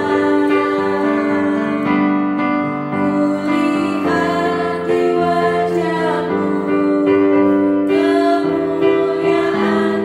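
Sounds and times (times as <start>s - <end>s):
women singing together: 0.0s - 2.1s, 2.9s - 10.0s
keyboard accompaniment: 0.0s - 10.0s.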